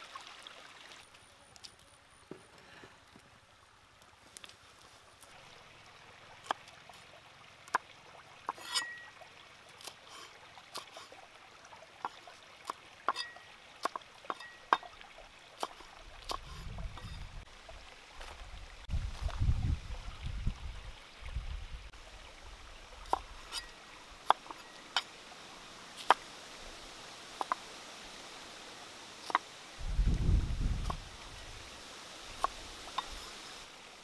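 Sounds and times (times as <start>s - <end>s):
water trickling: 0.0s - 1.8s, 3.1s - 34.0s.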